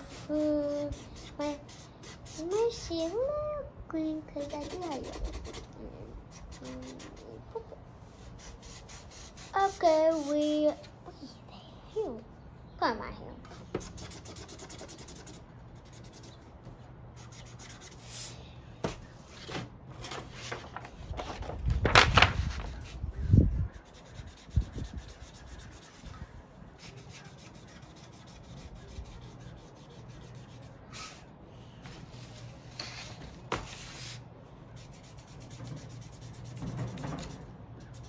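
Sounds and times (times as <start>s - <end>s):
marker scribbling on paper: 0.0s - 3.5s, 4.4s - 10.9s, 13.4s - 16.5s, 17.2s - 18.4s, 22.7s - 31.3s, 32.1s - 38.0s
paper rustling: 19.2s - 23.3s, 31.9s - 34.2s.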